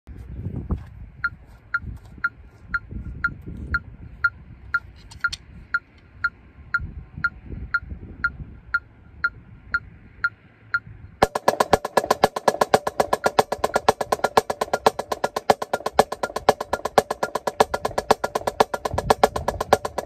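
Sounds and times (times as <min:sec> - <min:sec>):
metronome clicking: 0:11.2 - 0:20.0.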